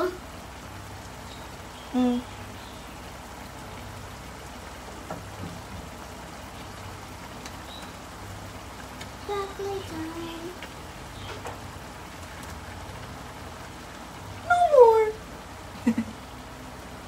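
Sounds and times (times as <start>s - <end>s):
meat sizzling in a wok: 0.0s - 17.0s.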